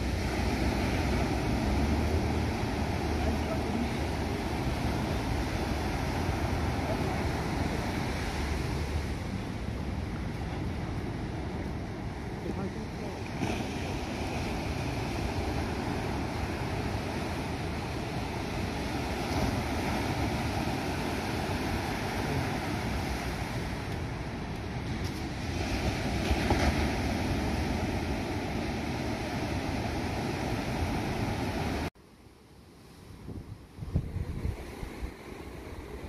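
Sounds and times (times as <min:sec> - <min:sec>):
wind buffeting microphone: 0:33.2 - 0:36.0.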